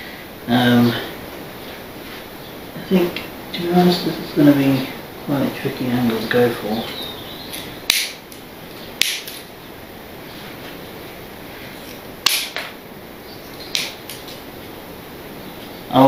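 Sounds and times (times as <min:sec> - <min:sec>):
low hiss: 0:00.0 - 0:16.0
pliers clicking: 0:09.0 - 0:09.4.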